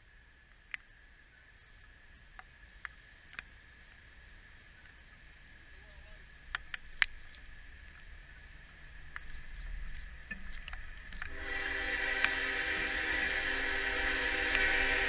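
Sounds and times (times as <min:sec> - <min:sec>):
diesel locomotive rumble: 0:07.4 - 0:15.0
locomotive air horn blast: 0:11.3 - 0:15.0.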